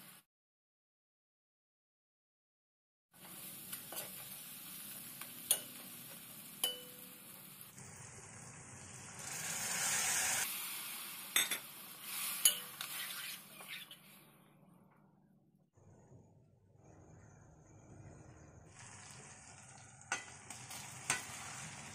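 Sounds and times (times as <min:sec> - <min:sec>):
water hissing in hot pan: 0:03.2 - 0:12.9, 0:18.7 - 0:21.9
masala sizzling in a pan: 0:03.2 - 0:14.0, 0:18.7 - 0:21.9.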